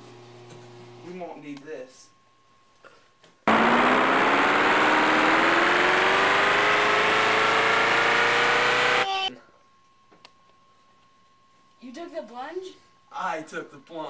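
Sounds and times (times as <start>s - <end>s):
motor running with rising whine: 3.5s - 9.3s.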